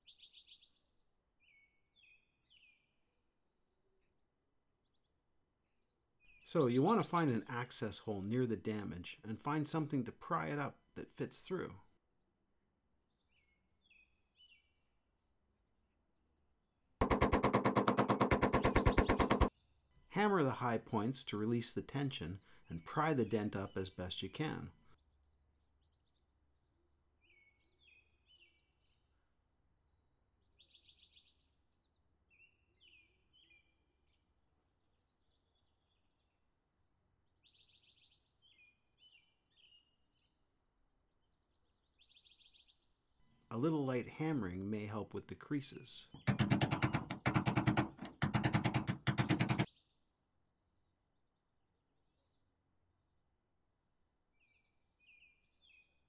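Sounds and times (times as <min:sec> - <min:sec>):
hammer tapping on sheet metal: 0:17.0 - 0:19.5, 0:46.2 - 0:49.7.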